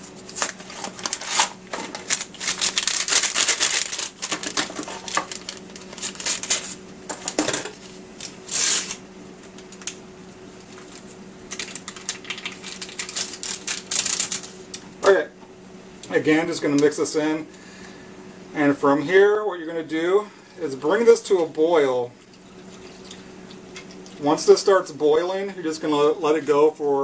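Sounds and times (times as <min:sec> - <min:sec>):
paper rustle: 0:00.2 - 0:06.8, 0:10.7 - 0:14.6
packaging crinkling: 0:00.2 - 0:07.4, 0:10.6 - 0:14.8.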